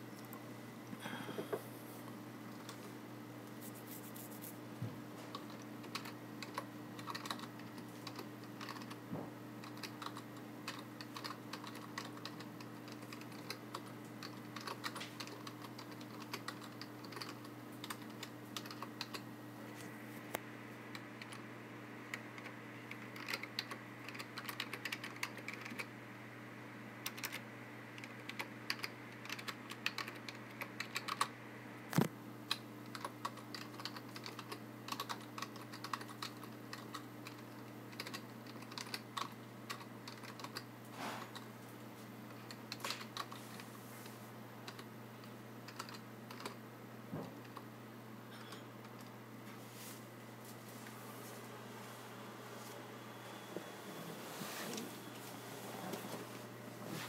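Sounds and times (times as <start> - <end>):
keyboard typing: 5.3 - 9.0, 9.6 - 19.2, 22.1 - 25.9, 27.1 - 27.4, 28.0 - 31.3, 32.5 - 40.7, 42.3 - 43.4, 44.6 - 46.6.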